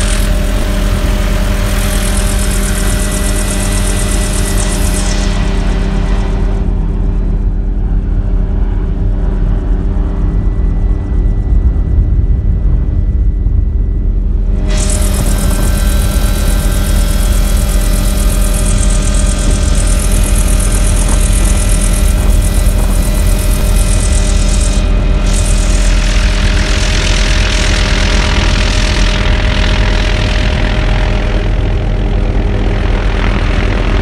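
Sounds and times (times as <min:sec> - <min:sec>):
powerboat engines running: 0:14.9 - 0:34.0.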